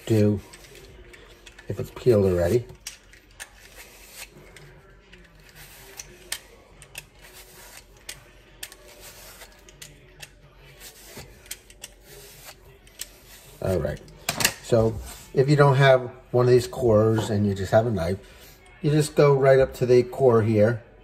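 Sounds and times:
vegetable peeler scraping apple: 3.4s - 4.6s, 5.4s - 14.0s.

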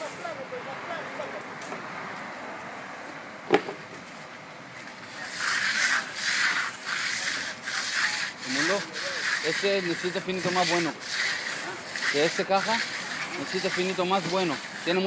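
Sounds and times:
sharp knock: 3.5s - 3.8s
float scraping wet concrete: 4.9s - 15.0s.

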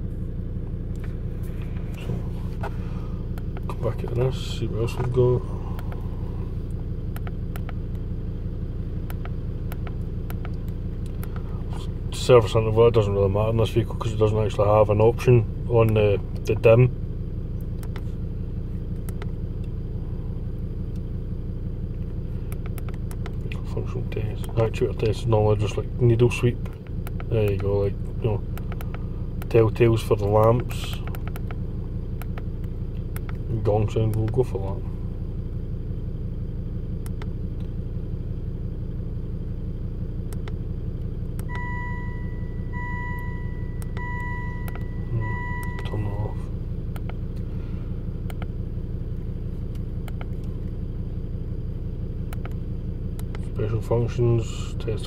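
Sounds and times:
diesel car engine idling: 0.0s - 55.0s
electronic warning chime: 41.5s - 46.1s.

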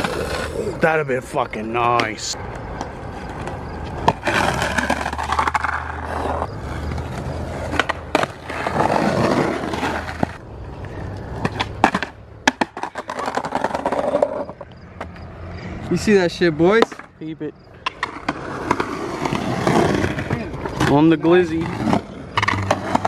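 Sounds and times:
skateboard wheels rolling on concrete: 0.0s - 23.0s
skateboard clacking on ground: 1.8s - 10.4s, 11.2s - 15.2s, 16.7s - 17.1s, 17.8s - 23.0s.

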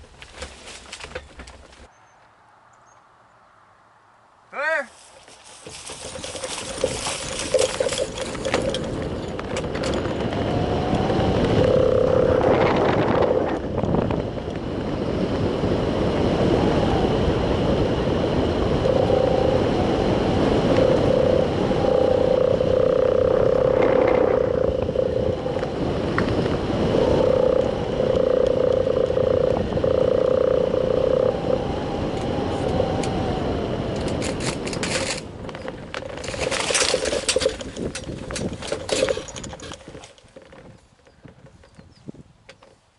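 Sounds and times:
wind rushing over microphone: 5.8s - 42.5s
buzzing hum: 6.4s - 38.8s.

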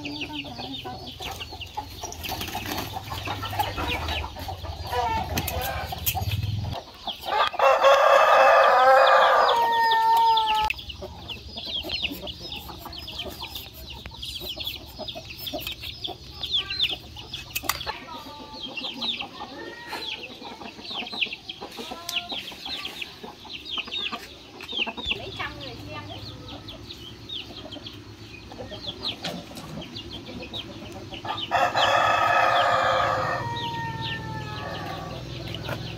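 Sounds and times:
chicks peeping: 0.0s - 35.9s
hen clucking: 0.0s - 35.9s
rooster crowing: 7.3s - 10.8s, 31.3s - 35.3s.

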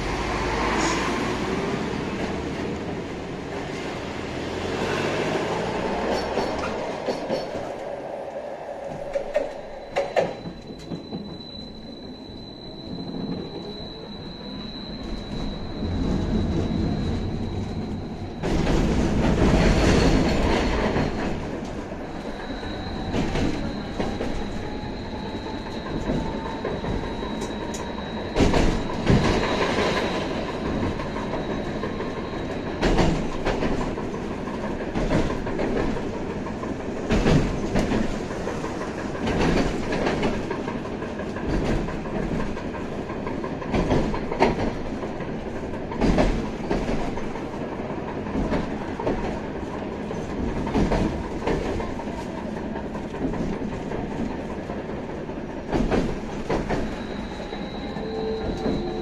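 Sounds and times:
tram running noise: 0.0s - 59.0s
wheels clacking over rail joints: 5.5s - 7.9s, 15.8s - 59.0s.

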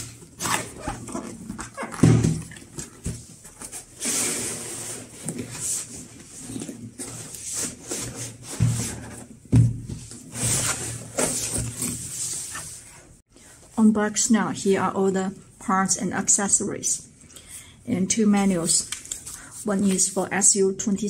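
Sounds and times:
cardboard packaging scraping: 0.0s - 9.4s, 10.2s - 13.2s.

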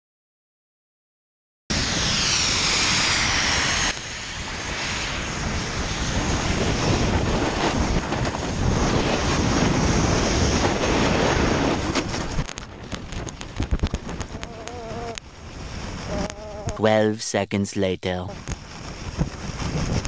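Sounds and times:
snowmaking gun hiss: 1.7s - 11.8s
wind buffeting microphone: 2.9s - 16.8s, 18.4s - 20.0s
snowboard scraping snow: 4.8s - 12.4s.

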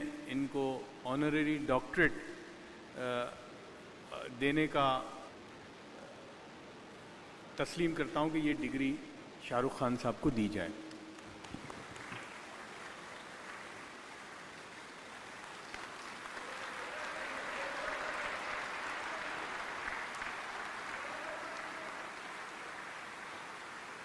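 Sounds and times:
audience applauding: 10.9s - 24.0s.

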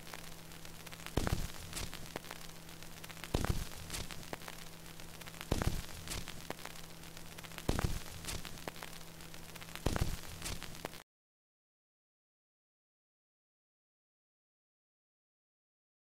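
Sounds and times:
faint hum: 0.0s - 11.0s
vinyl surface hiss and crackle: 0.0s - 11.0s.

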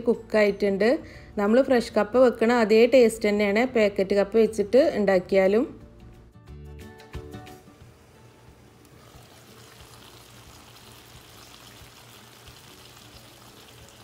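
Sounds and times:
food sizzling in a pan: 7.9s - 14.0s.

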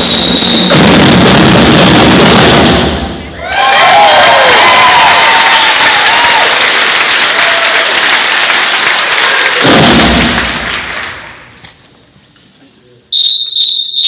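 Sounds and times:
audience applause: 3.4s - 11.4s.

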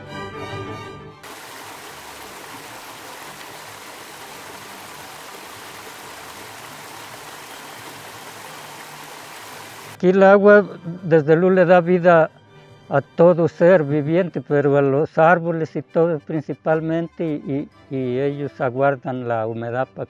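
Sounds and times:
stream water rushing over boulders: 1.2s - 10.0s.

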